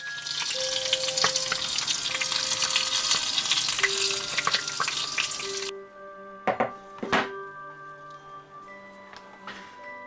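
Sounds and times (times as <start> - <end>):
fat sizzling and popping: 0.0 - 5.7.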